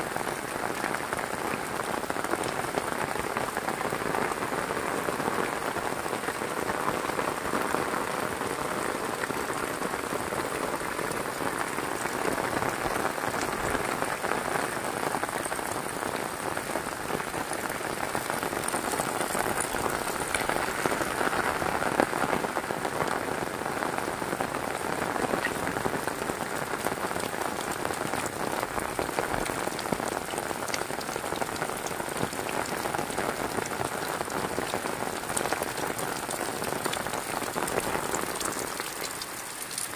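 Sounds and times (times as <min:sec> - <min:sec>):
heavy rain: 0:00.0 - 0:39.9
raindrop taps: 0:18.2 - 0:21.2.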